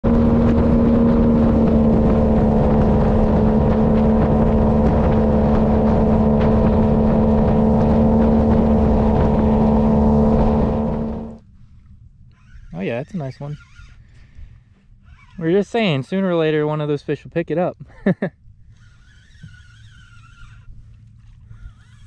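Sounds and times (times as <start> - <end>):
outboard motor droning: 0.0 - 22.0.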